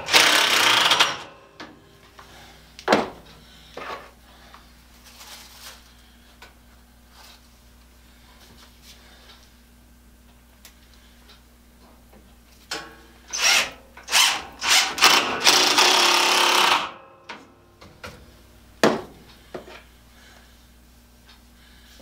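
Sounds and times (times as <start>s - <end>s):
cordless drill driving screws: 0.0s - 1.3s, 13.3s - 17.0s.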